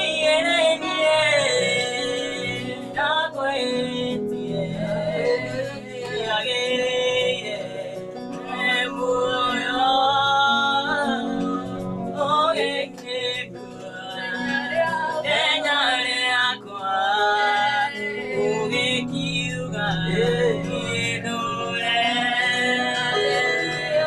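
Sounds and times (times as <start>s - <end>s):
electronic keyboard accompaniment: 0.0s - 24.0s
people singing together: 0.0s - 24.0s.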